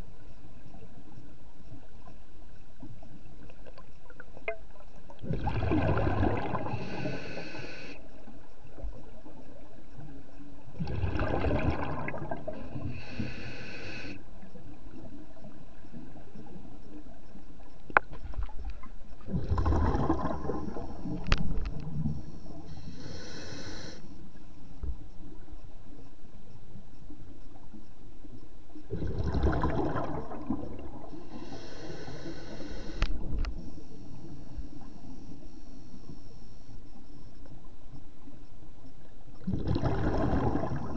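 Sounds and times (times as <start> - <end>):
diver breathing through regulator: 6.6 - 8.0, 12.6 - 14.2, 22.2 - 24.2, 31.2 - 34.5.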